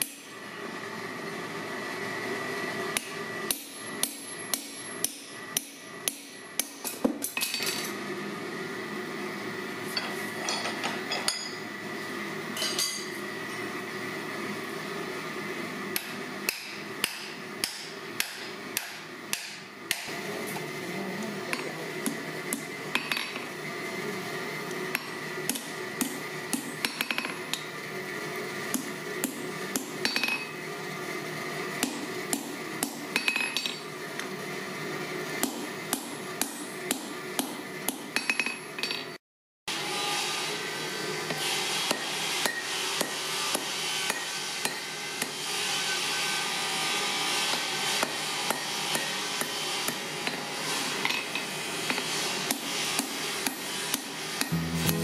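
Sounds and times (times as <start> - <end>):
hammer ringing on hot steel: 41.9 - 45.4.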